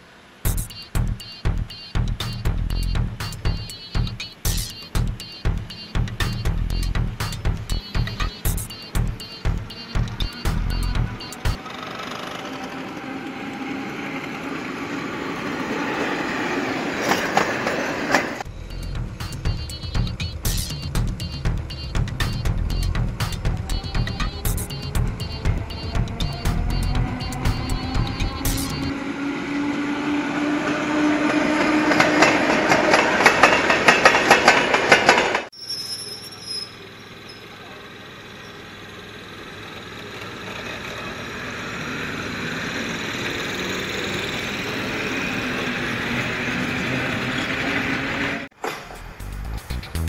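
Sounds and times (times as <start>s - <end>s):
electric train passing: 0.0s - 35.6s, 36.4s - 50.0s
steady tone: 0.4s - 11.7s, 18.4s - 30.2s
train wheel clacks: 31.3s - 35.5s.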